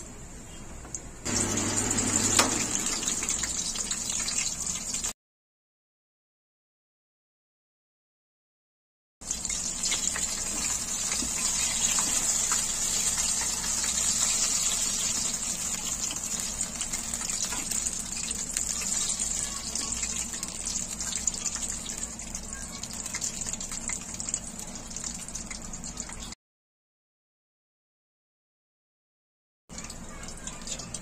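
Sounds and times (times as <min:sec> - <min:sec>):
food deep-frying in hot oil: 0:01.2 - 0:05.2, 0:09.2 - 0:26.4, 0:29.7 - 0:31.0.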